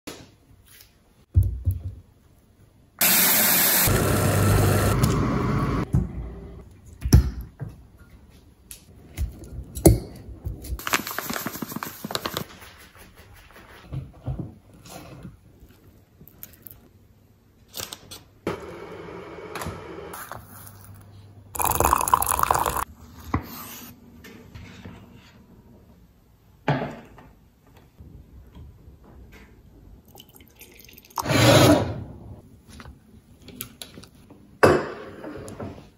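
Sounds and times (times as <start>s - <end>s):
tap water running: 21.6s - 22.8s.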